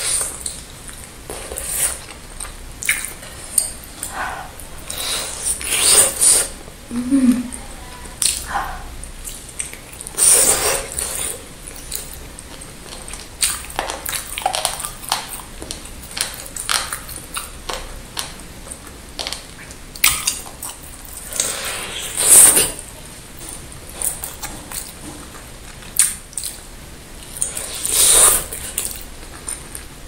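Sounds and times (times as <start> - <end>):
chewing and biting food: 8.2 - 22.6.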